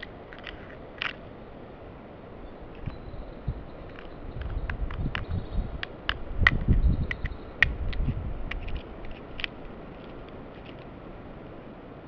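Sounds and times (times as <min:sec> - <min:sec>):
crow beak tapping a nut: 0:03.9 - 0:08.8.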